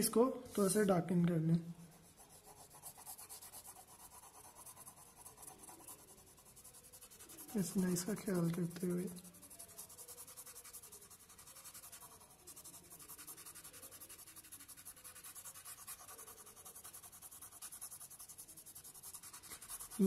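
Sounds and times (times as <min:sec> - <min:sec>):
pencil scratching on paper: 0:01.8 - 0:20.0.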